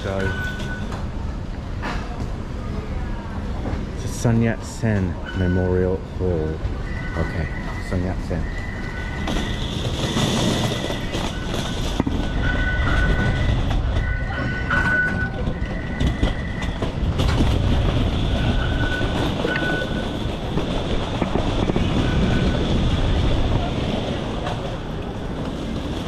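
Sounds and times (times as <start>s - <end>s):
train rumbling through station: 0.0s - 26.0s.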